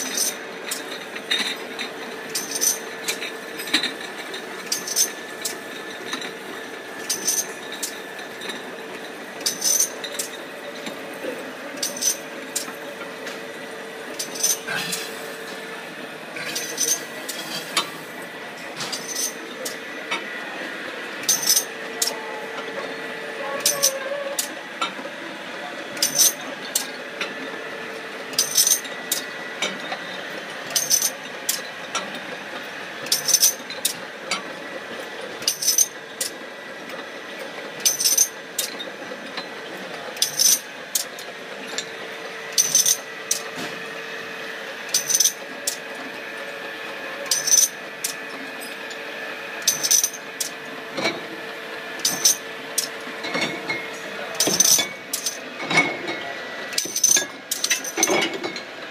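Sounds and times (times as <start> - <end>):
machine hum with faint whine: 0.0 - 58.9
glass bottles clinking: 14.2 - 14.6, 16.4 - 17.0, 18.9 - 19.8, 52.0 - 56.2.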